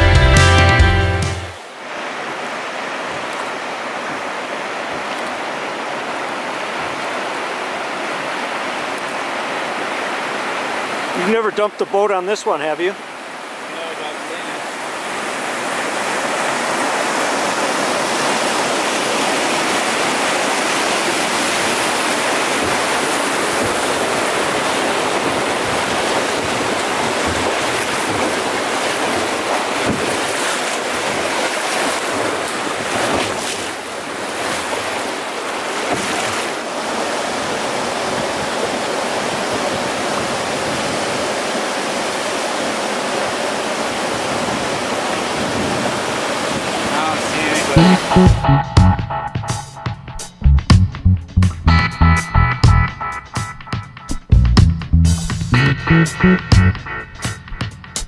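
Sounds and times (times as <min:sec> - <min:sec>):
river rapids rushing: 0:01.2 - 0:48.4
wind noise on microphone: 0:23.5 - 0:30.3, 0:44.2 - 0:46.8.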